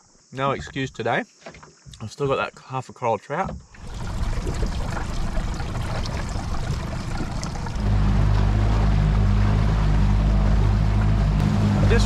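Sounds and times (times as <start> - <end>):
outboard motor: 3.8 - 12.0.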